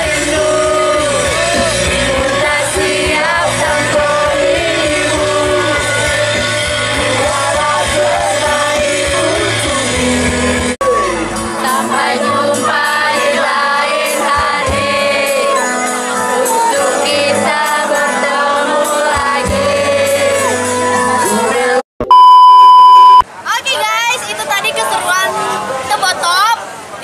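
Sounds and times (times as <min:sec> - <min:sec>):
music with sung vocals: 0:00.0 - 0:21.8
high test-tone beep: 0:22.0 - 0:23.2.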